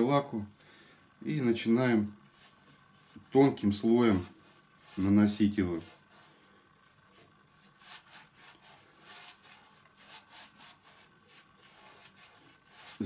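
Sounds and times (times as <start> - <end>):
brush swishing varnish: 2.3 - 13.0.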